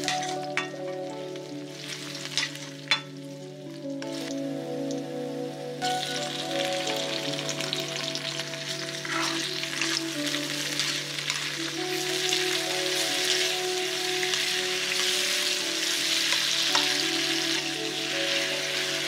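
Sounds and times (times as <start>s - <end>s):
vegetables sizzling in hot oil: 0.0s - 5.1s, 5.7s - 19.0s
background music with held notes: 0.0s - 19.0s
spatula stirring in wok: 8.8s - 10.0s.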